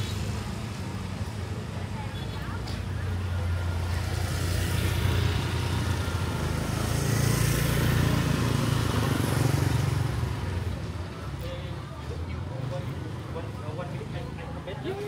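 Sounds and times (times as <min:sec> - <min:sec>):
hiss from wet street: 0:02.7 - 0:10.8
motorbike engine passing: 0:03.0 - 0:10.8.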